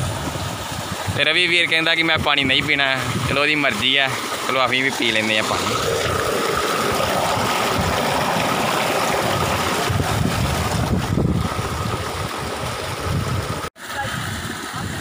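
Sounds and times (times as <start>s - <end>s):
wind on microphone: 0.0s - 3.4s, 5.5s - 15.0s
water gushing from a pipe: 0.0s - 15.0s.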